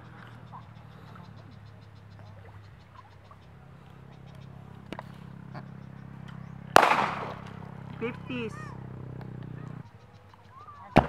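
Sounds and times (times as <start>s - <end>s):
faint outdoor background: 0.0s - 11.0s
firecracker bang: 6.7s - 7.6s.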